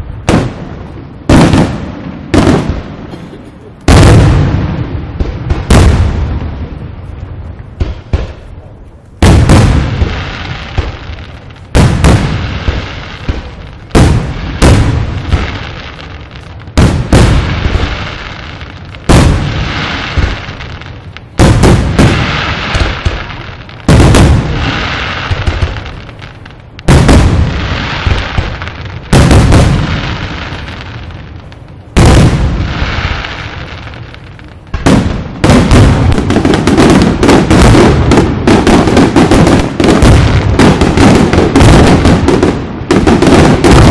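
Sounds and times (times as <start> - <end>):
firework shells booming: 0.2 - 6.8, 7.6 - 43.9.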